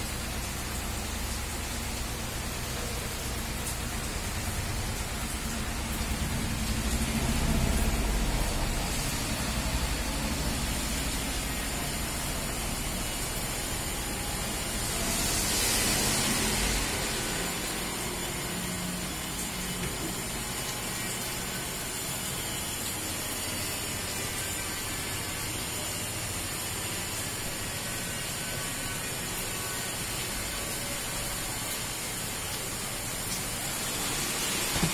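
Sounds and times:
rain falling: 0.0s - 34.9s
loud hiss: 7.7s - 34.9s.

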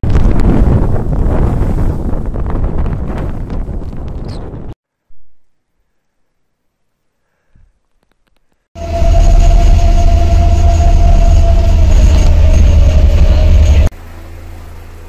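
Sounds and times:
helicopter drone: 8.8s - 15.0s
vehicle engine rumble with whine: 8.8s - 15.0s.

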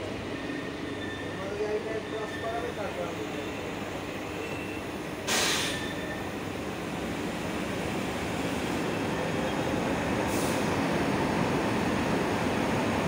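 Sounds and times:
short hiss of air: 5.3s - 5.9s, 10.3s - 10.7s.

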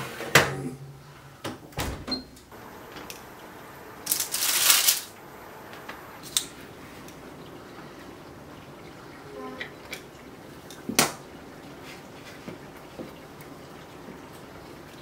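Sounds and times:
rustling of parchment paper: 4.0s - 5.2s.

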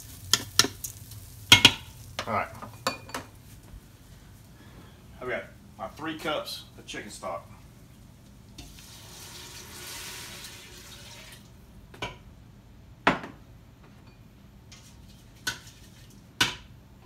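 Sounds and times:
liquid pouring into pot: 8.5s - 11.6s.

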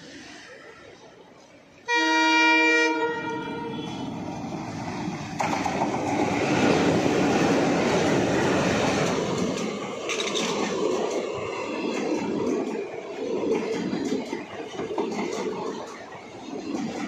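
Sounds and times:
diesel locomotive passing: 0.0s - 17.0s
coach wheels clattering on rails: 4.2s - 17.0s.

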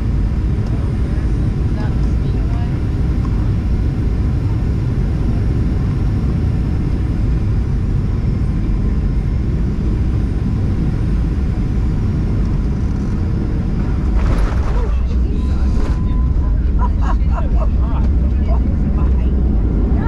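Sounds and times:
aircraft cabin engine rumble: 0.0s - 20.0s.

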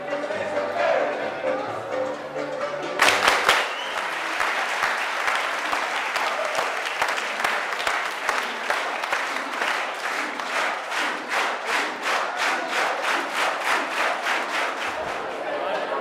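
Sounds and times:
audience applauding: 3.0s - 15.4s.

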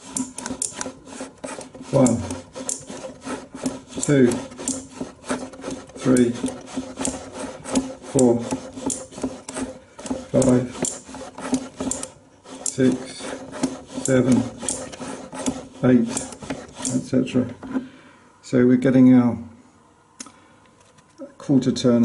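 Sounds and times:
projector gears clicking: 11.8s - 12.9s.

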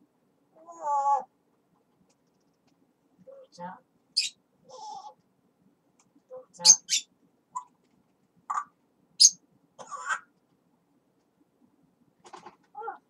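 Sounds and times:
parrot chattering: 4.2s - 5.1s, 6.6s - 7.7s, 8.5s - 10.3s.

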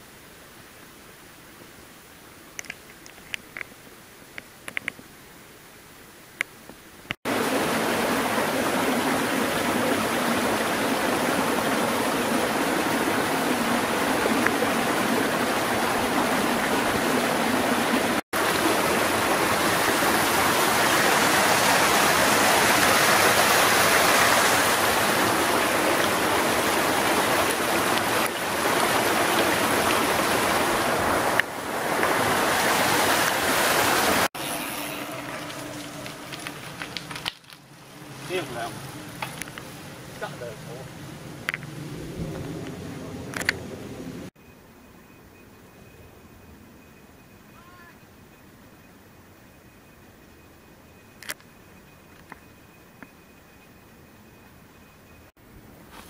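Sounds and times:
stream rushing over rocks: 7.3s - 37.3s.

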